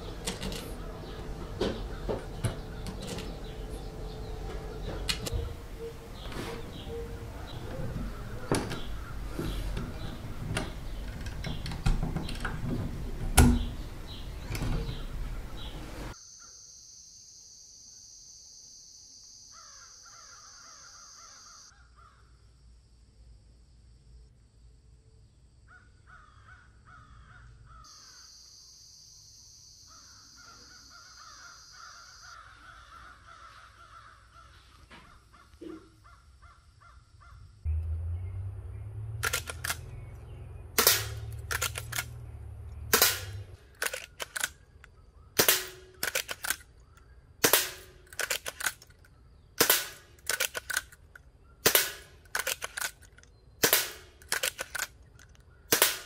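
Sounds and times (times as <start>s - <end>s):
birds calling: 0.0s - 16.5s, 25.7s - 28.3s, 29.9s - 56.0s
airgun firing: 40.8s - 42.1s, 42.9s - 44.6s, 45.4s - 46.6s, 47.4s - 48.9s, 49.6s - 51.0s, 51.6s - 53.0s, 53.6s - 54.9s, 55.7s - 56.0s.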